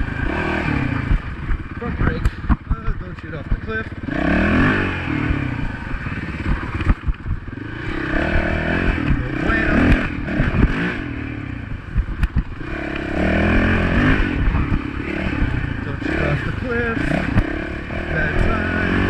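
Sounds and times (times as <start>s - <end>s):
dirt bike engine revving: 0.0s - 19.0s
sharp knocks and rattles: 1.0s - 4.5s, 5.2s - 10.9s, 11.7s - 13.7s.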